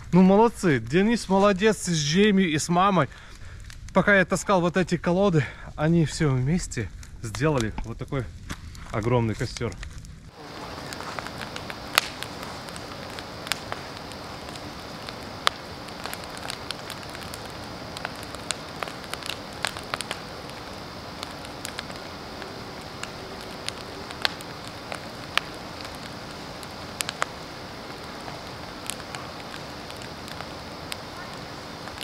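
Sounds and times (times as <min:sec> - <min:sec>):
bonfire crackling and hissing: 0:00.0 - 0:32.0.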